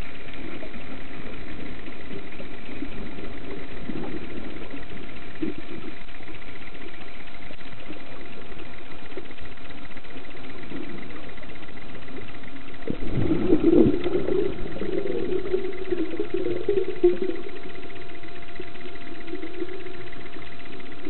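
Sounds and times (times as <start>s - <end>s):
muffled motor hum underwater: 0.0s - 21.0s
rough rumbling: 12.4s - 21.0s.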